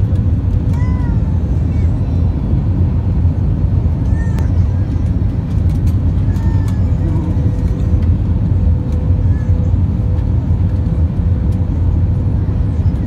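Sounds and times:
airliner engines rumbling: 0:00.0 - 0:13.0
light clicks and rattles: 0:04.0 - 0:08.2.

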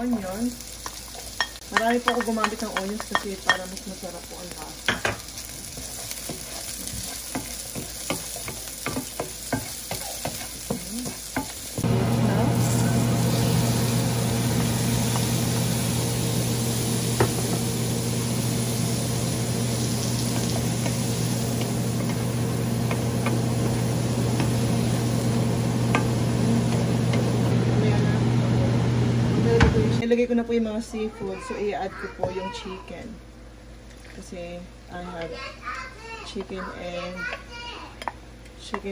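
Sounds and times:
onions sizzling in oil: 0:00.0 - 0:30.0.

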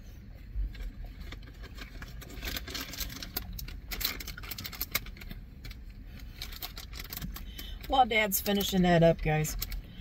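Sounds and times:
food packaging crinkling: 0:00.7 - 0:07.7.

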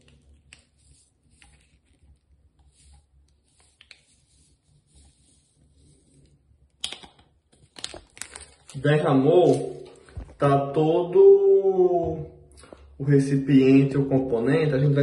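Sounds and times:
foil sachet crinkling: 0:07.6 - 0:10.0.

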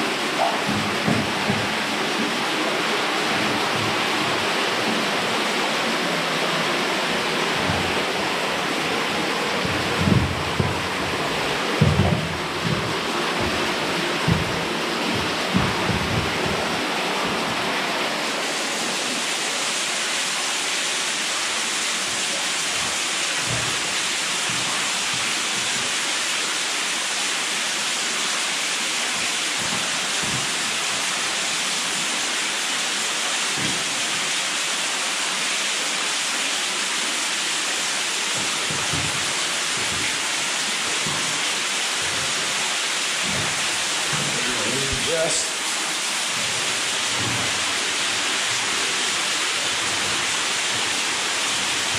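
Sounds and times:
rushing water: 0:00.0 - 0:51.9
soft low knocks: 0:07.0 - 0:17.8, 0:38.4 - 0:45.1.

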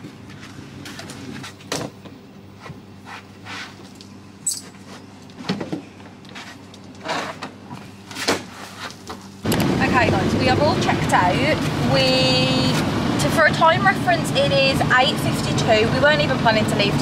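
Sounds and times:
low hum: 0:09.4 - 0:17.0.

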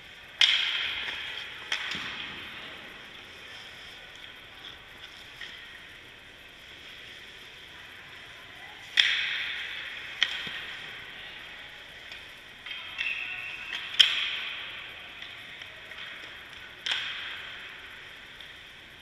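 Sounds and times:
hockey puck cracks: 0:12.6 - 0:14.6.

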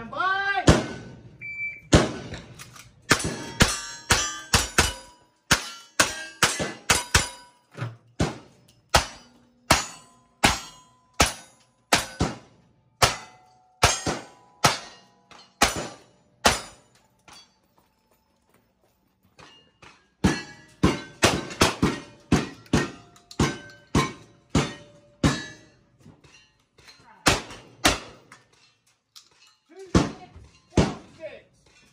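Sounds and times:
ring of steel targets: 0:00.7 - 0:18.4, 0:19.2 - 0:31.9
shot timer beep: 0:01.4 - 0:01.9.

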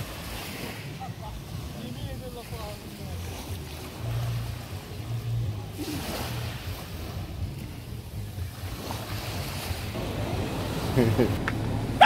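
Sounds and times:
steady low rumble: 0:09.7 - 0:12.0.

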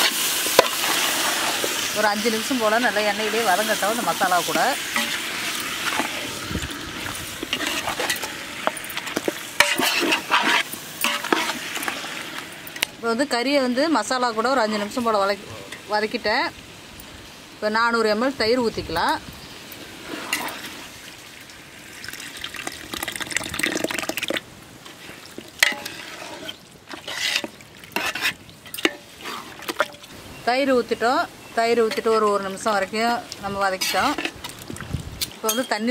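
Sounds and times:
chicken frying in oil: 0:00.0 - 0:12.6, 0:20.0 - 0:35.0
metal ladle scraping pot: 0:04.5 - 0:12.8, 0:20.0 - 0:20.8, 0:24.8 - 0:30.1, 0:33.6 - 0:34.7.

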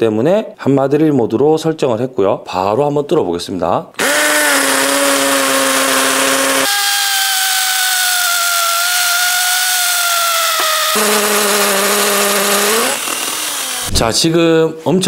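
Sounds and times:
hammer drill drilling into concrete: 0:04.0 - 0:14.0.

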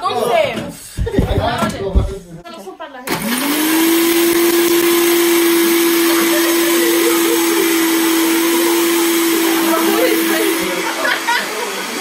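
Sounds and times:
blender motor running: 0:03.1 - 0:12.0.

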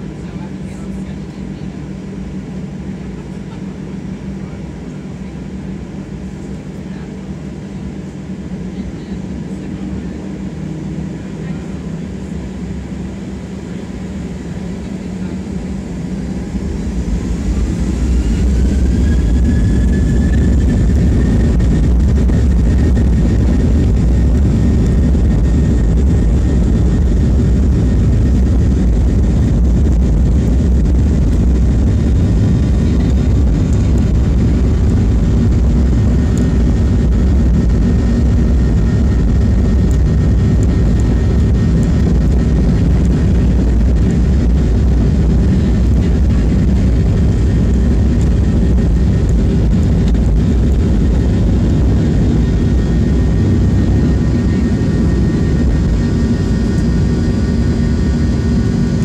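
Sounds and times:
jet engines spooling up: 0:12.7 - 0:59.0.

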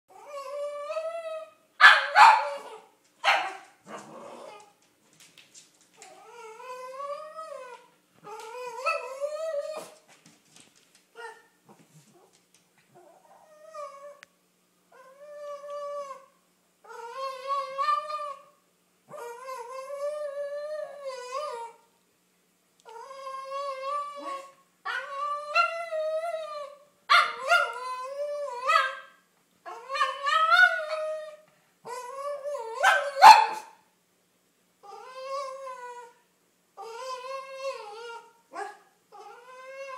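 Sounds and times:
dog whining howls: 0:00.1 - 0:01.6, 0:06.1 - 0:10.0, 0:14.9 - 0:21.8, 0:22.9 - 0:29.1, 0:29.7 - 0:33.2, 0:34.8 - 0:36.2, 0:36.8 - 0:39.9.

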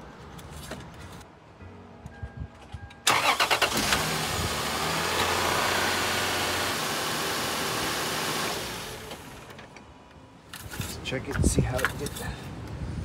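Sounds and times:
car engine cranking and idling: 0:03.0 - 0:09.9.

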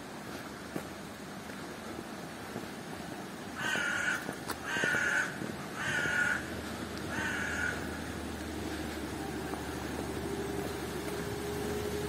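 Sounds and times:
crow cawing: 0:03.6 - 0:08.1.

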